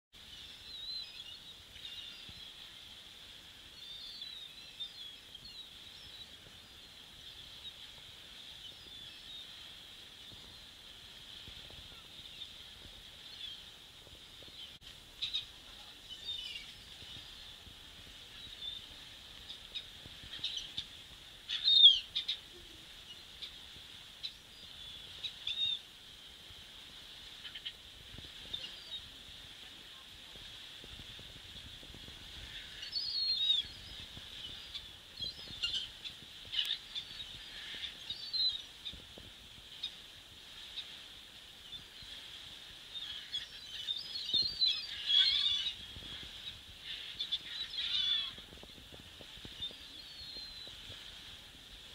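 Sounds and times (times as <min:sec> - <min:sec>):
steady high hiss: 0:00.2 - 0:51.9
gulls calling: 0:42.9 - 0:51.0.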